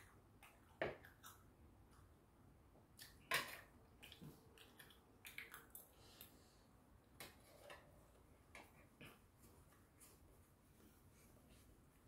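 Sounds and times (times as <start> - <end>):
quiet chewing: 0.0 - 2.2, 3.9 - 6.6.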